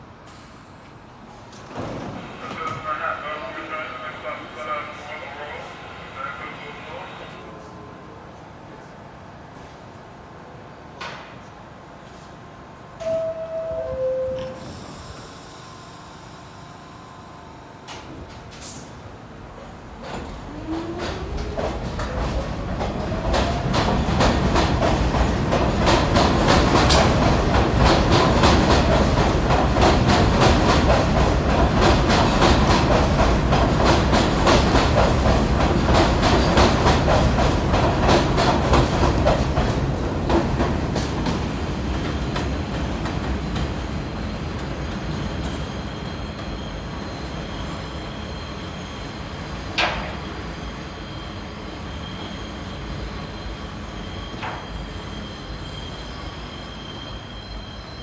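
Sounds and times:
subway train wheels clattering: 0:00.0 - 0:16.6, 0:17.6 - 0:58.0.

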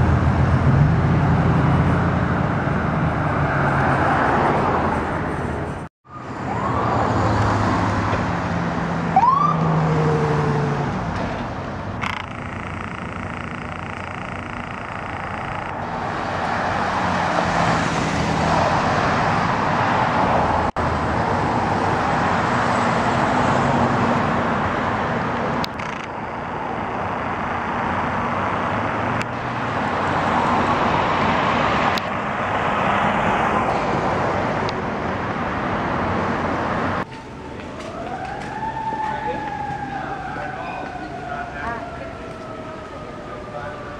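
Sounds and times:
cars passing on street: 0:00.0 - 0:43.9
ambulance siren whoop: 0:06.1 - 0:08.0, 0:09.1 - 0:10.8, 0:37.1 - 0:43.9.

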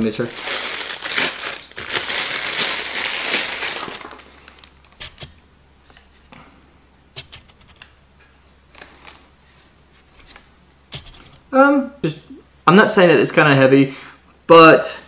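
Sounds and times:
plastic bag crinkling: 0:00.0 - 0:05.3, 0:08.7 - 0:09.4.

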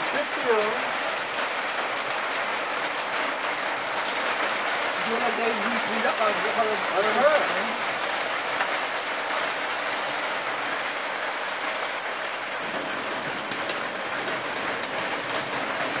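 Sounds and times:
sharp rain taps: 0:00.0 - 0:16.0
steady rain hissing: 0:00.0 - 0:16.0.

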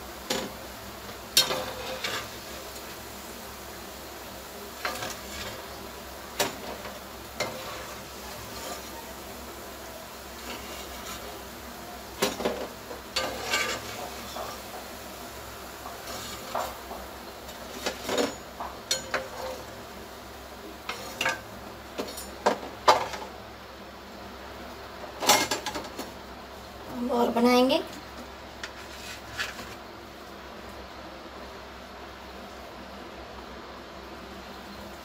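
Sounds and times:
oil sizzling: 0:00.0 - 0:35.0
metal spoon clinking on pan: 0:18.9 - 0:19.5.

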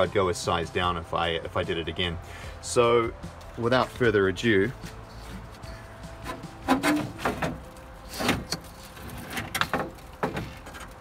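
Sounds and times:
metal scrapes and knocks: 0:05.1 - 0:11.0.

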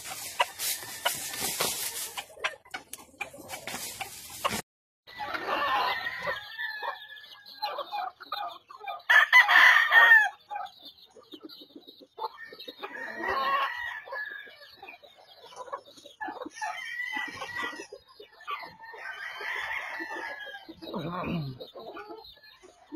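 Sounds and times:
roosters crowing: 0:00.0 - 0:02.4, 0:03.8 - 0:07.8, 0:09.1 - 0:10.5, 0:12.4 - 0:14.7, 0:16.5 - 0:22.1
chickens clucking: 0:00.0 - 0:22.9.

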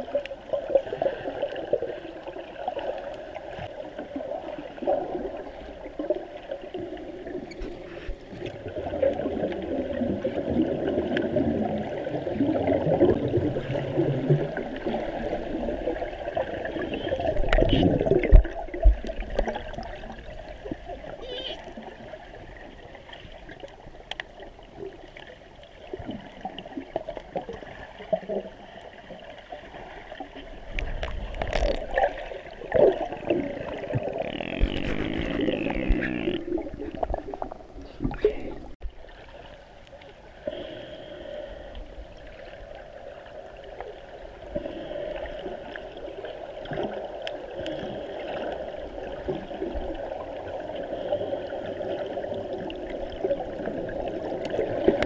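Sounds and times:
water gurgling and splashing: 0:00.0 - 0:55.0.

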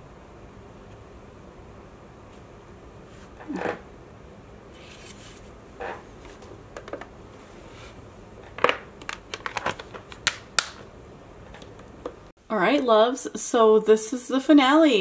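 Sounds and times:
plastic box clicks and rattles: 0:08.6 - 0:10.8.

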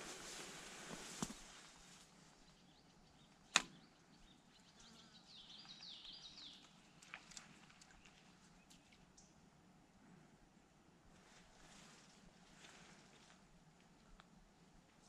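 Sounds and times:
sharp click: 0:03.5 - 0:03.8.

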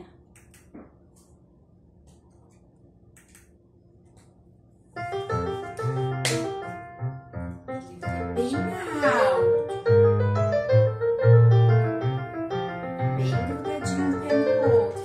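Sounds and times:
recorded piano music: 0:04.9 - 0:15.0.

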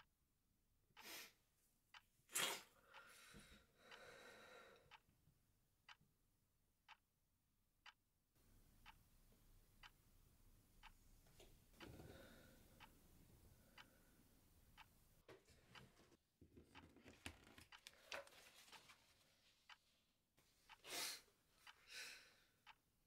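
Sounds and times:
person breathing: 0:02.8 - 0:05.0, 0:11.8 - 0:12.9, 0:20.8 - 0:22.6
clock ticking: 0:04.8 - 0:05.1, 0:05.8 - 0:06.1, 0:06.8 - 0:07.1, 0:07.8 - 0:20.0, 0:21.6 - 0:23.0.

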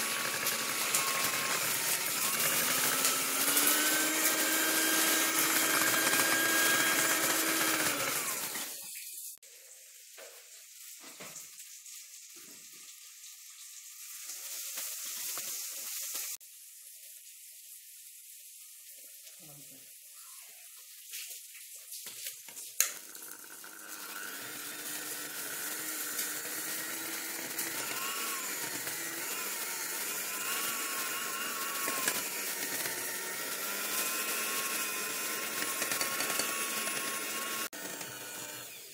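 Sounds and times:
electric hand mixer running: 0:00.0 - 0:08.8, 0:22.9 - 0:38.9.

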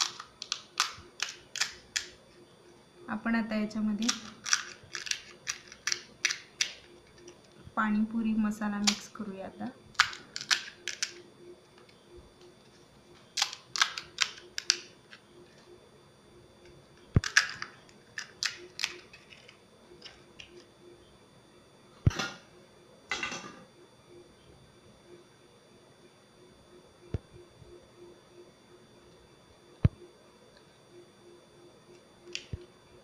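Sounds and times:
fried shells cracking: 0:00.0 - 0:02.2, 0:04.0 - 0:07.4, 0:09.9 - 0:11.2, 0:13.4 - 0:15.2, 0:17.2 - 0:20.6.

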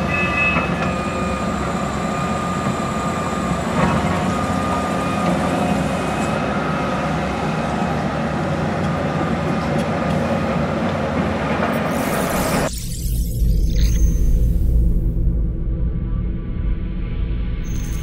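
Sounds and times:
high hydraulic whine: 0:00.0 - 0:07.4, 0:11.7 - 0:15.4, 0:17.2 - 0:18.0
excavator diesel engine: 0:00.0 - 0:12.7.

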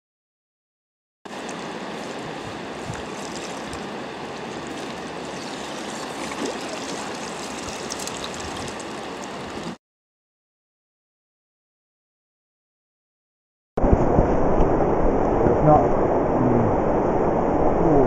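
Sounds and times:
river water rushing: 0:01.3 - 0:09.8.

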